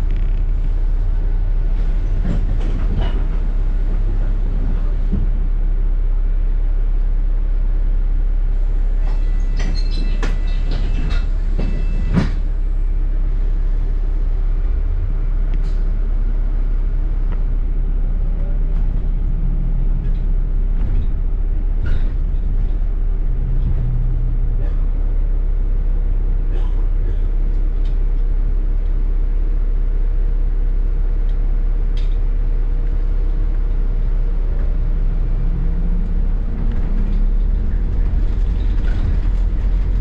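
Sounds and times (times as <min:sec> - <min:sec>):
bus engine and road noise: 0:00.0 - 0:40.0
rattles and clicks: 0:02.1 - 0:05.4, 0:18.3 - 0:24.9, 0:34.6 - 0:40.0
rising whine: 0:34.4 - 0:40.0.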